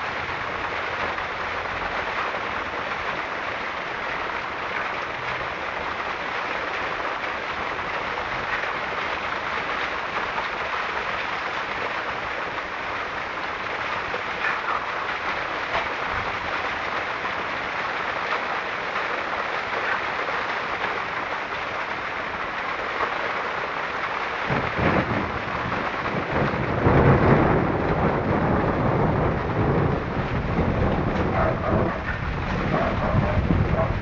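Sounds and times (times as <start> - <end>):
steady rain: 0.0 - 34.0
low rumble of thunder: 24.5 - 34.0.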